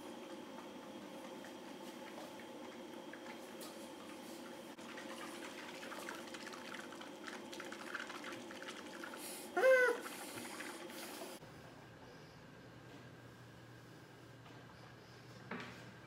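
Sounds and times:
rising hum through closed lips: 9.0 - 15.8.

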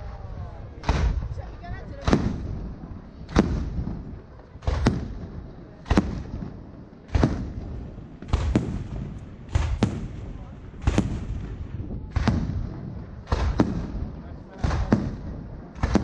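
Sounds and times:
firework shells bursting: 4.6 - 16.0.

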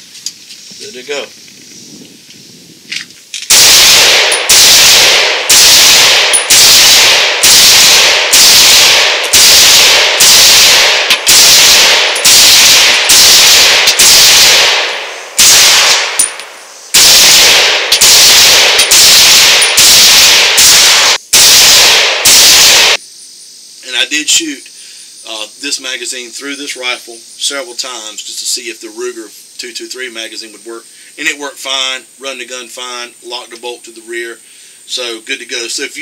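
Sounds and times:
rifle shots with ringing echo: 3.5 - 23.0.

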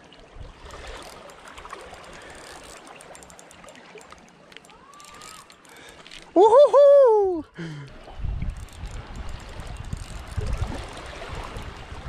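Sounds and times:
small waves lapping on rocks: 0.0 - 6.4, 7.8 - 12.0
fishing reel clicking: 0.7 - 6.5, 8.4 - 12.0.

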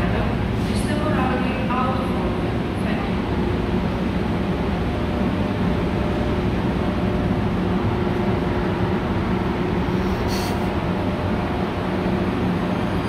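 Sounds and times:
train equipment hum and rumble: 0.0 - 13.0
short air hiss: 10.0 - 10.7.

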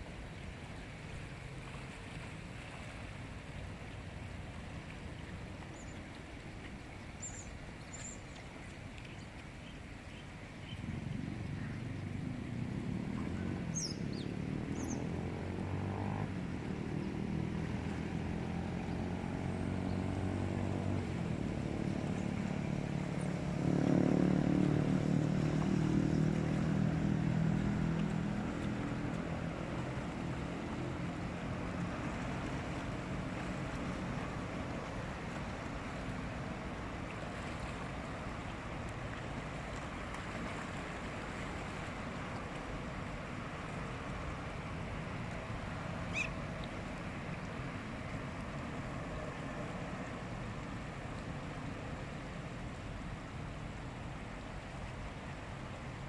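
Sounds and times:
low engine drone: 10.8 - 38.1.

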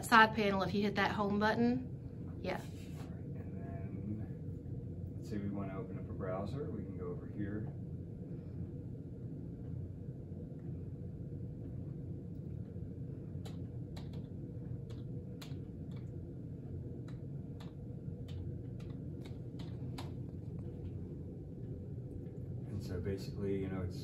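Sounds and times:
low room hum: 0.0 - 24.0
keyboard keys clicking: 13.4 - 16.2, 17.0 - 20.6.

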